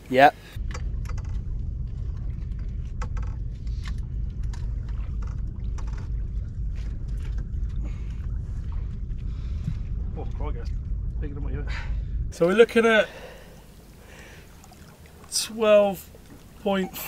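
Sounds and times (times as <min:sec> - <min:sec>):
small knocks and rattles: 0:00.6 - 0:08.3
wind on microphone: 0:00.6 - 0:12.4.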